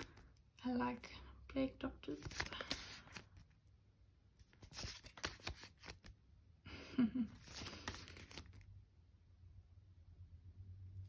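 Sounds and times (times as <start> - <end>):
paper rustling and crinkling: 2.1 - 3.6, 4.4 - 6.2, 7.3 - 8.7.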